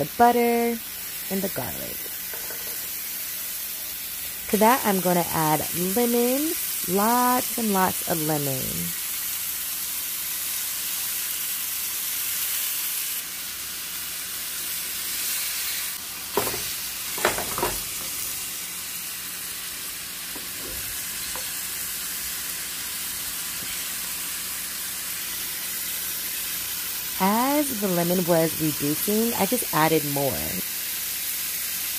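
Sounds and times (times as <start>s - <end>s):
fish sizzling in a frying pan: 0.0s - 31.9s.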